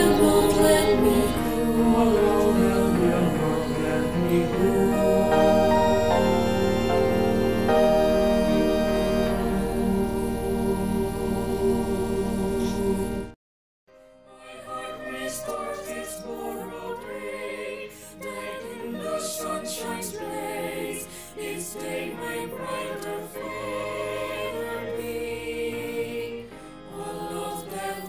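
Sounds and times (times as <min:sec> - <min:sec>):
choir singing in parts: 0:00.0 - 0:13.4, 0:14.2 - 0:28.0
held organ chord: 0:00.0 - 0:13.4.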